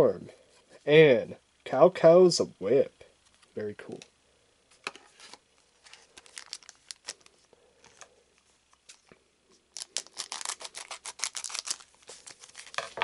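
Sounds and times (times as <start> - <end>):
foil wrapper crinkling and tearing: 5.8 - 8.1, 9.7 - 13.0.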